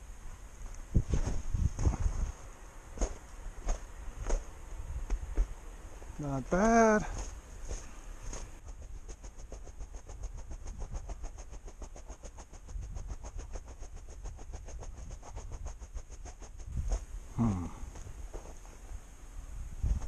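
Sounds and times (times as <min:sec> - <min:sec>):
footsteps in snow: 0:00.6 - 0:17.1, 0:18.0 - 0:19.0
short voice sound: 0:17.4 - 0:17.9.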